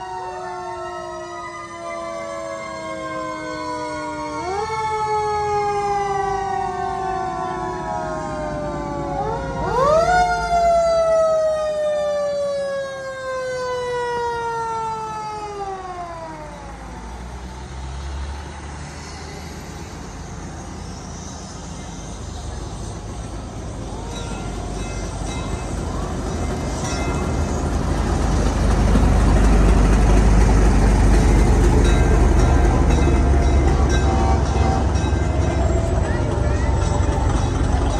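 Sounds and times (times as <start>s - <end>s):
fire truck siren: 0.0s - 37.9s
low engine rumble: 14.8s - 37.9s.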